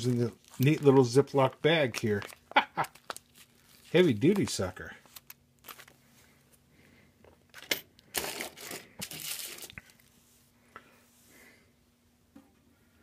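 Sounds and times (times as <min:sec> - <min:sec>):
plastic bag crinkling: 0:00.0 - 0:06.0, 0:07.5 - 0:10.1.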